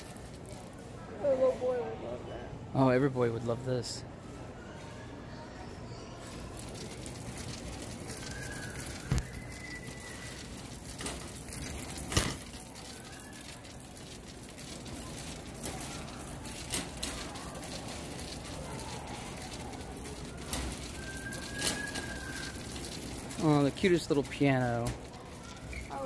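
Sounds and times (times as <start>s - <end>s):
shopping cart rattling: 0.0s - 0.8s, 6.2s - 26.0s
store background din: 0.0s - 26.0s.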